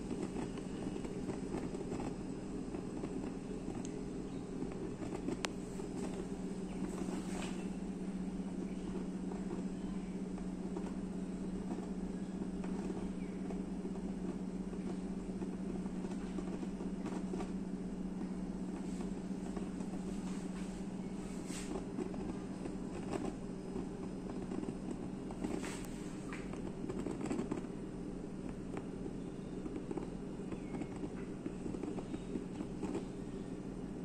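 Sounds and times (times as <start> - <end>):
water boiling: 0.0 - 20.2
low hum: 0.0 - 34.0.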